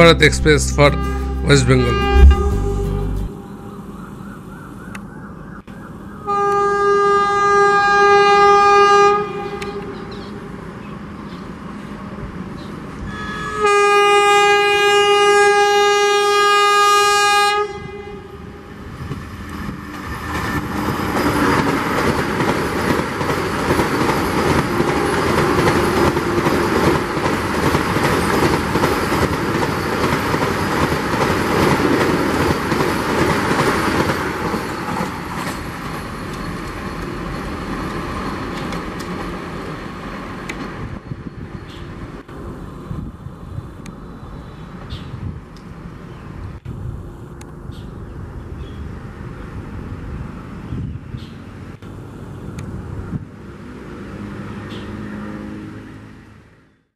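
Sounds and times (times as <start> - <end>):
train horn blasts: 0.0 - 3.9, 6.3 - 10.0, 13.0 - 18.6
train wheels rushing on rails: 18.7 - 42.9.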